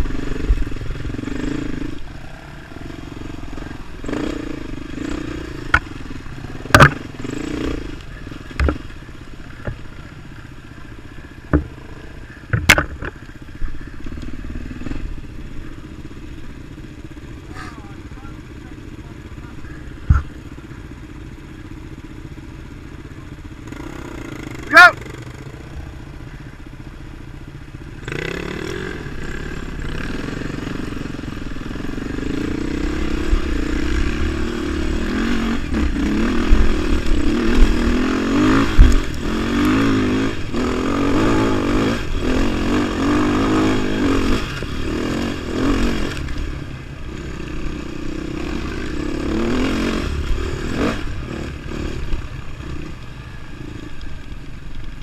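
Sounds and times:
motorcycle engine accelerating: 0:00.0 - 0:55.0.

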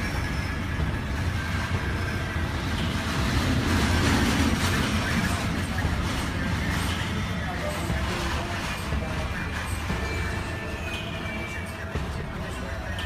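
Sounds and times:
strong wind rumbling and hissing: 0:00.0 - 0:07.8.

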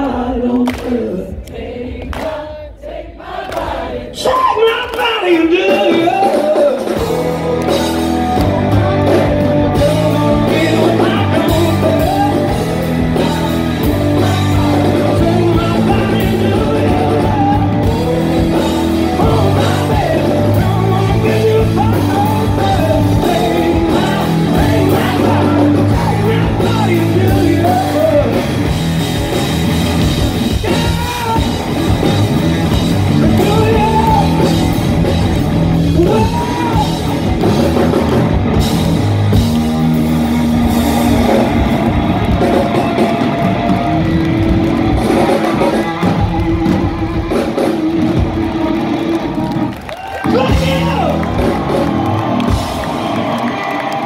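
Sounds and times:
person singing: 0:04.2 - 0:28.7, 0:33.1 - 0:34.7
rock band playing live: 0:04.4 - 0:54.0
low bass notes: 0:05.6 - 0:53.3.

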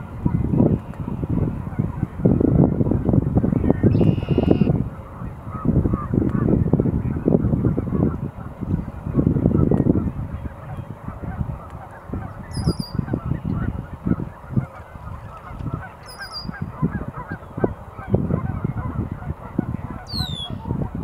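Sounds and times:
geese honking: 0:03.9 - 0:06.6, 0:07.2 - 0:21.0.

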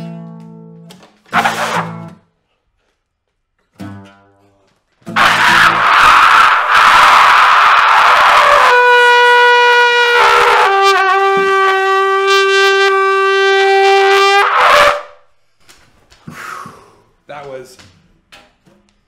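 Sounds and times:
brass horn blaring: 0:01.3 - 0:02.1, 0:05.2 - 0:15.2.

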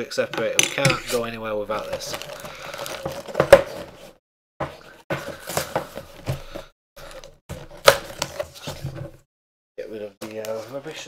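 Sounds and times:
cardboard box rustling and scraping: 0:01.1 - 0:09.2
cardboard flap tearing: 0:07.5 - 0:08.7.

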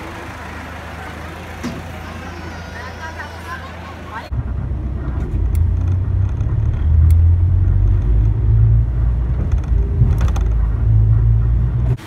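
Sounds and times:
car interior road and engine noise: 0:00.0 - 0:12.0.

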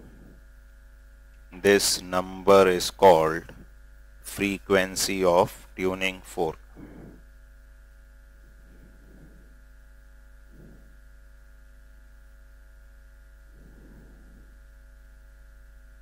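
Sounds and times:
faint soft rustles: 0:00.0 - 0:00.9, 0:06.7 - 0:15.4
steady electrical hum: 0:00.0 - 0:16.0.

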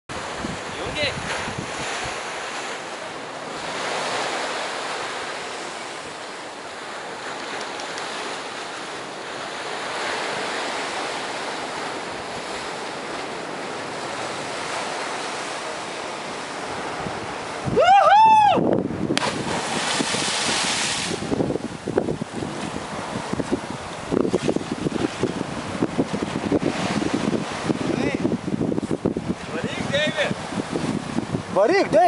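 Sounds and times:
wind buffeting microphone: 0:00.1 - 0:02.7, 0:05.9 - 0:32.0
waves washing against rocky shore: 0:00.1 - 0:32.0.

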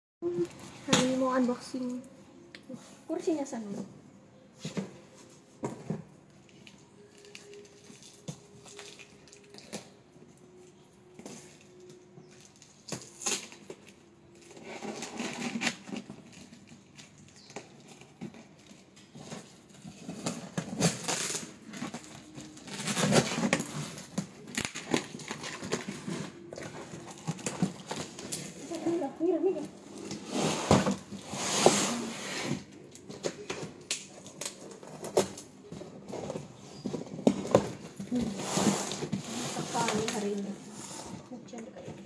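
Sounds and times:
cardboard crackling and rustling: 0:03.6 - 0:42.0
scissors cutting packing tape: 0:06.6 - 0:29.0.

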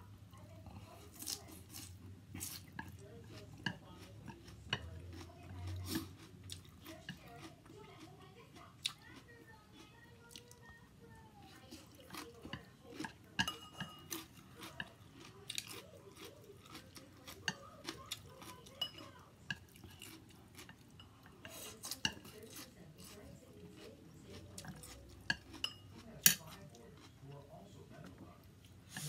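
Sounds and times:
chewing: 0:00.3 - 0:29.0.

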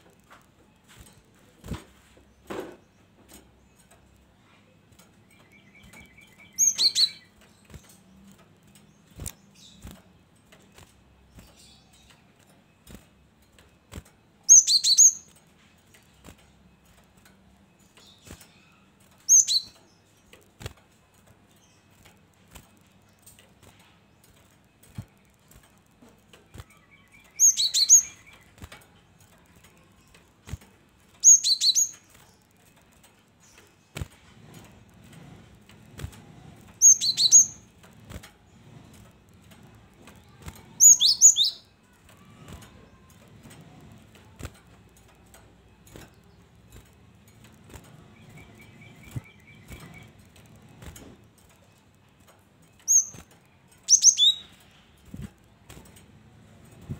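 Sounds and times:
bird flapping in cage: 0:00.0 - 0:56.9
bird chirping and trilling: 0:05.2 - 0:08.0, 0:14.5 - 0:15.3, 0:17.8 - 0:20.0, 0:26.5 - 0:28.7, 0:31.2 - 0:32.4, 0:36.8 - 0:37.7, 0:40.2 - 0:43.3, 0:45.8 - 0:50.6, 0:52.6 - 0:55.3.

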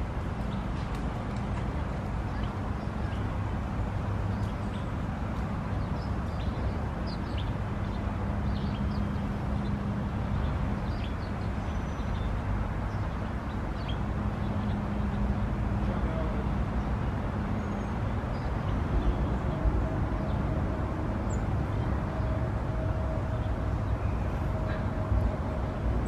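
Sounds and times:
distant traffic rumble: 0:00.0 - 0:26.0
small birds chirping: 0:05.7 - 0:15.2.

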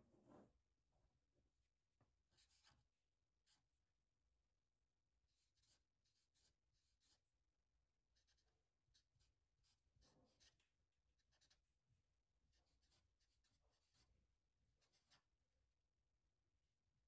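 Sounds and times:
marker drawing on paper: 0:02.1 - 0:03.8, 0:05.2 - 0:15.6.

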